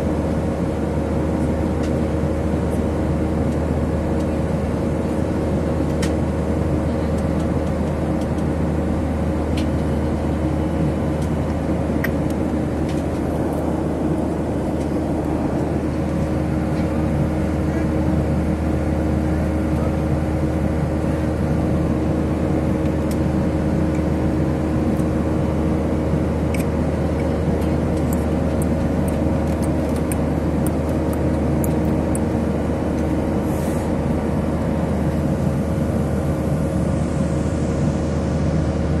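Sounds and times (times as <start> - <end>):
airliner cabin drone: 0.0 - 39.0.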